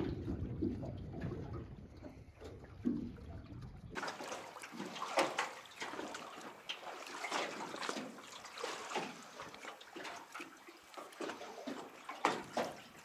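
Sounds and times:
waves lapping against boat hull: 0.0 - 13.0.

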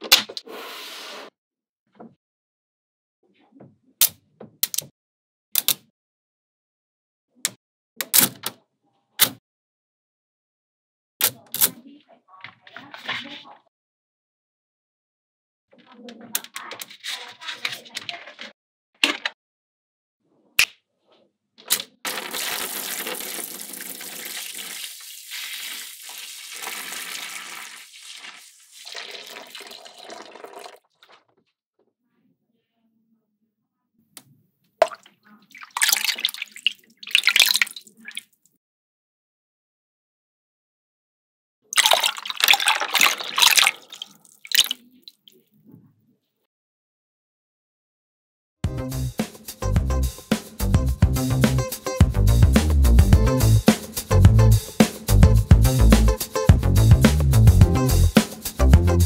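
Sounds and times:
water pouring into plastic tanks: 22.1 - 31.4, 34.8 - 38.4, 41.8 - 45.4.

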